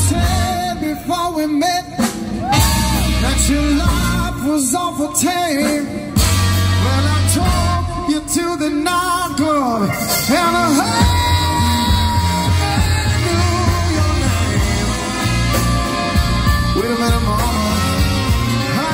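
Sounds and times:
deep bass line: 0:00.0 - 0:01.1, 0:02.5 - 0:04.6, 0:06.2 - 0:09.1, 0:10.4 - 0:18.9
lead singer: 0:00.0 - 0:18.9
live band over loudspeakers: 0:00.0 - 0:18.9
saxophone section: 0:06.1 - 0:08.2, 0:09.9 - 0:18.9.

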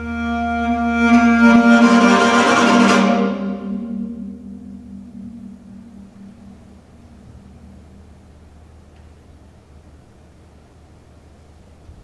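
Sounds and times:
faint hiss: 0:00.0 - 0:12.0
low steady hum: 0:00.0 - 0:12.0.

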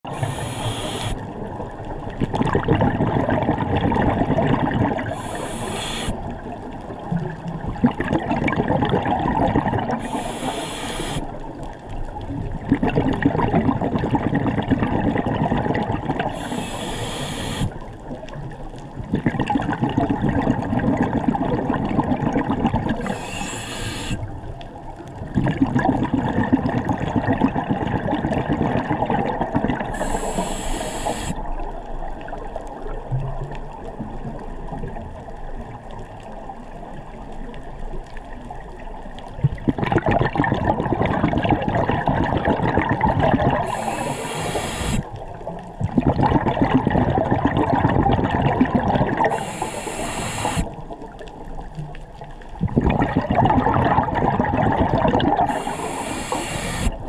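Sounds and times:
exhaled air bubbling: 0:00.0 - 0:57.0
regulator inhale hiss: 0:00.1 - 0:01.2, 0:05.0 - 0:06.2, 0:10.0 - 0:11.4, 0:16.3 - 0:17.8, 0:23.0 - 0:24.2, 0:29.9 - 0:31.4, 0:43.6 - 0:45.1, 0:49.2 - 0:50.7, 0:55.4 - 0:57.0.

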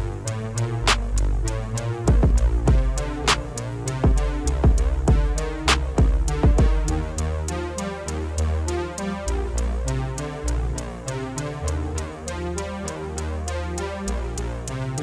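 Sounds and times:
drum machine beat: 0:00.0 - 0:07.5, 0:14.3 - 0:15.0
synth bass line: 0:00.0 - 0:15.0.

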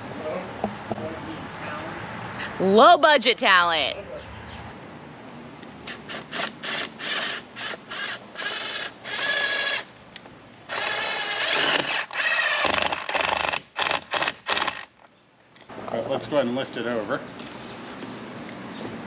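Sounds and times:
cordless drill motor whining: 0:06.1 - 0:09.9, 0:10.7 - 0:13.0.

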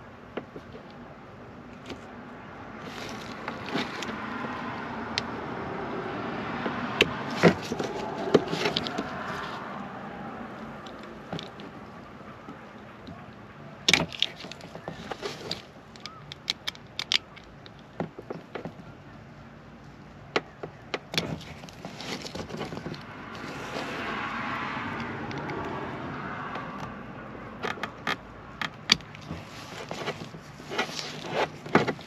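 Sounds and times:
cutters clicking and snapping: 0:13.9 - 0:17.8.

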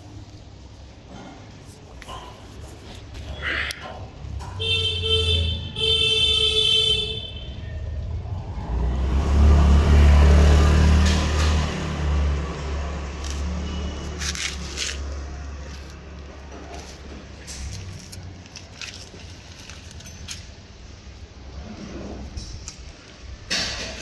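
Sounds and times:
vehicle engine rumbling: 0:00.0 - 0:24.0
car horn blasts: 0:04.6 - 0:07.7.

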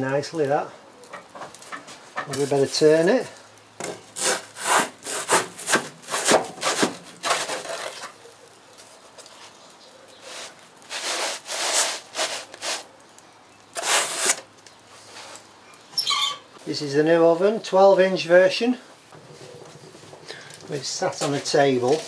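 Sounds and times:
pizza peel scraping on stone: 0:03.8 - 0:08.2, 0:10.2 - 0:12.9, 0:13.7 - 0:16.1.

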